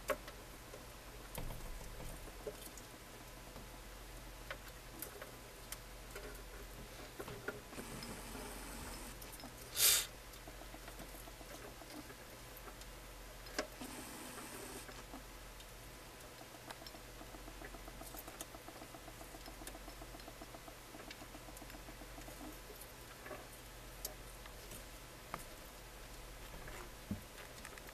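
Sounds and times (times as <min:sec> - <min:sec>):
crabs scratching and pattering: 0:00.0 - 0:27.9
fine ticks: 0:15.6 - 0:25.5.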